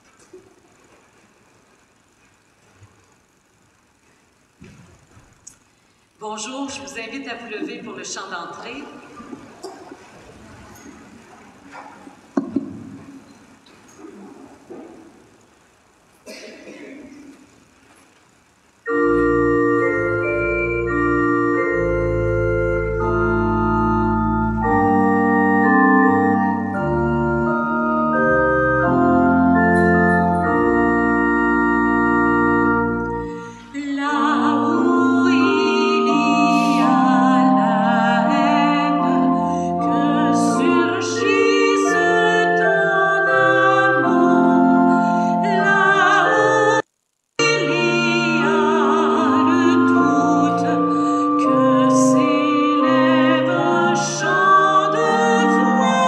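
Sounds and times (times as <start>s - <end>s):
pipe organ playing chords: 18.8s - 46.8s, 47.4s - 56.0s
woman singing a hymn: 33.1s - 46.8s, 47.4s - 56.0s.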